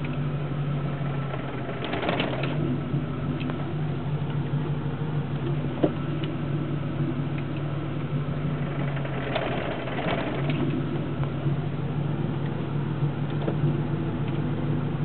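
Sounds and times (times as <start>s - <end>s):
car engine idling: 0.0s - 15.0s
transmission rattling: 1.0s - 14.6s.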